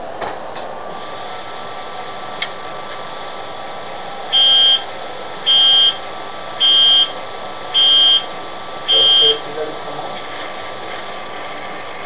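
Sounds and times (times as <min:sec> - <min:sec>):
model locomotive diesel engine noise: 0:00.0 - 0:12.0
loud high beep: 0:04.3 - 0:04.9, 0:05.5 - 0:06.0, 0:06.6 - 0:07.1, 0:07.8 - 0:08.3, 0:08.9 - 0:09.4.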